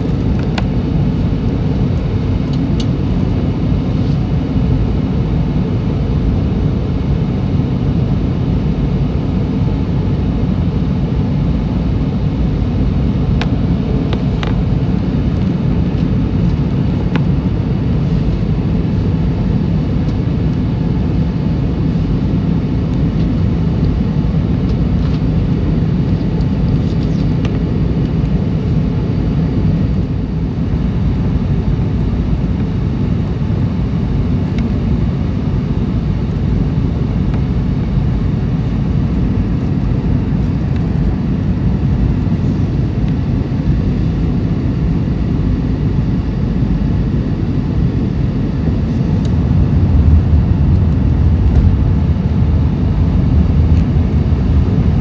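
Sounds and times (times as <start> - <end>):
jet engines and rushing air: 0.0 - 55.0
deep low hum: 47.1 - 55.0.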